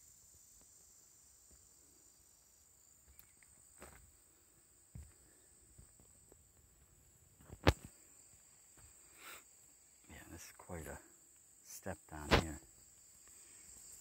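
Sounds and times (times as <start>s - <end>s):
insects buzzing: 0.0s - 14.0s
footsteps on wooden deck: 4.9s - 6.9s.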